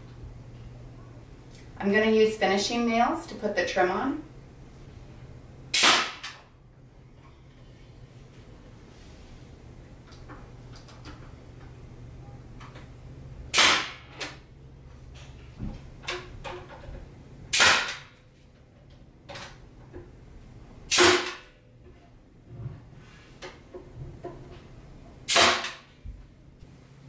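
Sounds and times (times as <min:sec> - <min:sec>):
nail gun shots: 0:05.7 - 0:06.4, 0:13.5 - 0:14.4, 0:17.5 - 0:18.1, 0:20.9 - 0:21.5, 0:25.3 - 0:25.9.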